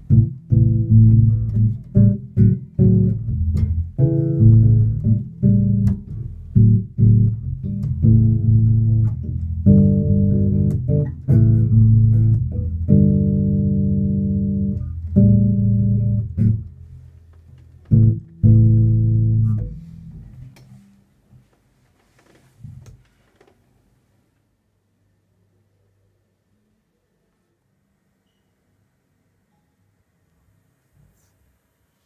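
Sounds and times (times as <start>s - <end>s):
electric bass plucked notes: 0.0s - 17.1s, 17.7s - 20.6s.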